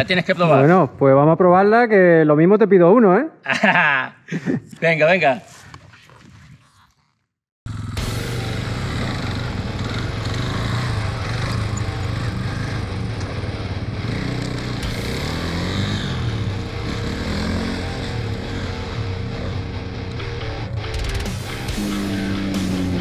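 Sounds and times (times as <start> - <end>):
motorcycle engine revving: 7.7 - 23.0.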